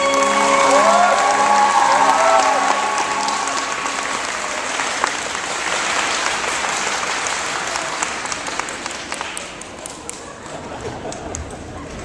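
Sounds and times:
dance music: 0:00.0 - 0:04.2
audience applauding: 0:00.0 - 0:11.8.

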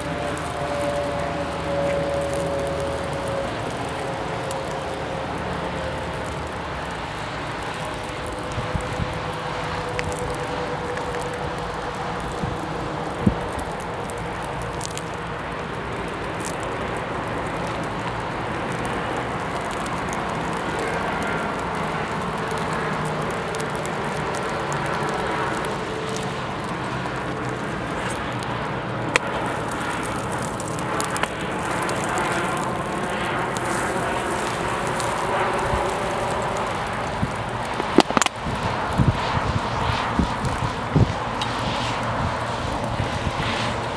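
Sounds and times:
fire crackling: 0:00.0 - 0:43.9
rush of flame: 0:00.0 - 0:43.9
sharp pop: 0:37.8 - 0:38.4.

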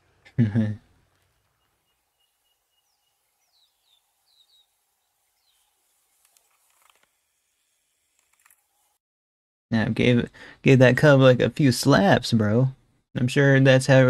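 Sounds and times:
bird chirps: 0:01.2 - 0:06.2.

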